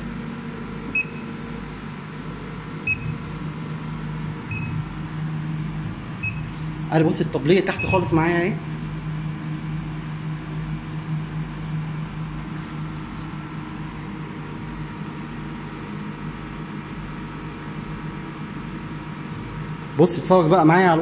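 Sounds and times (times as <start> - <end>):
laser cutter low drone: 2.6 - 16.0.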